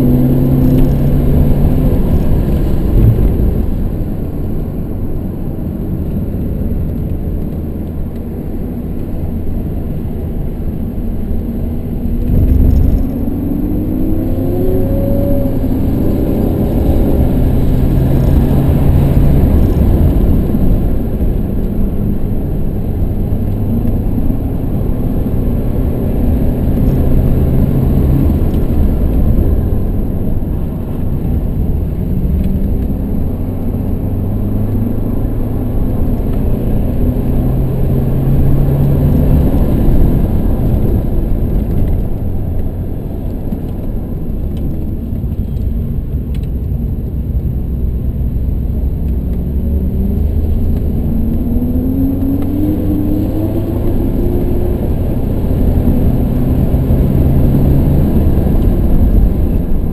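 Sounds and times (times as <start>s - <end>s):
car engine revving: 0.0s - 5.2s, 11.2s - 21.4s
road rumble: 0.0s - 59.9s.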